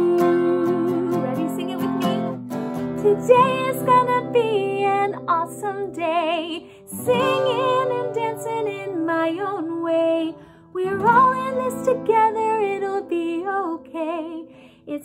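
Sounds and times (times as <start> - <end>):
woman singing: 0.0 - 2.4, 3.0 - 15.0
acoustic guitar strumming: 0.0 - 10.2.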